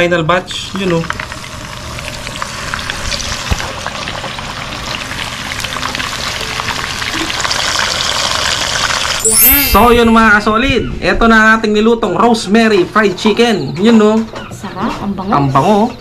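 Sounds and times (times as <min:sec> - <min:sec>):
chicken sizzling in hot oil: 0:00.5 - 0:09.7.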